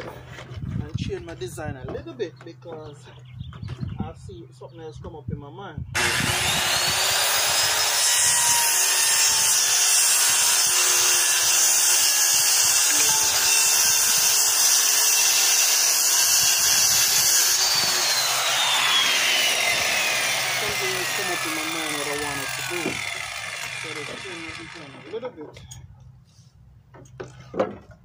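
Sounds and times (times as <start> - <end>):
circular saw cutting wood: 6.0 - 25.3.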